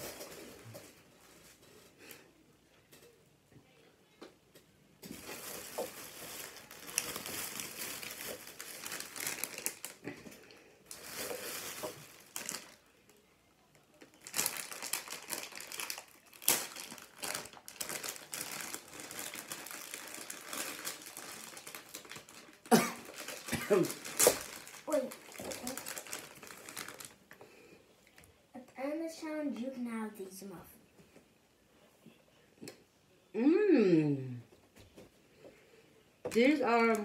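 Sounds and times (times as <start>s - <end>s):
plastic snack wrapper crinkling: 5.0s - 27.5s.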